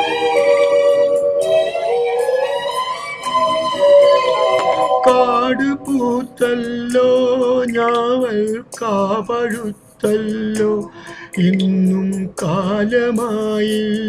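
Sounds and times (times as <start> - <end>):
karaoke backing track: 0.0 - 14.0
man singing: 5.0 - 14.0.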